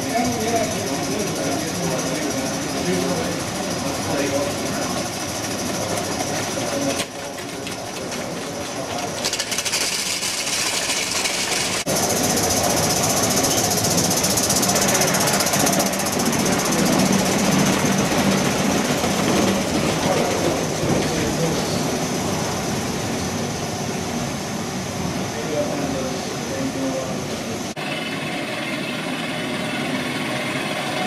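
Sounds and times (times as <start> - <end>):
model trains clattering on track: 0.0 - 22.4.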